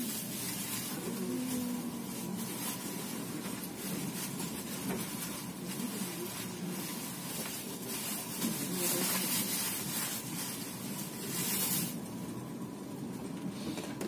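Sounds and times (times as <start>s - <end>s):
train running noise with hiss: 0.0s - 14.0s.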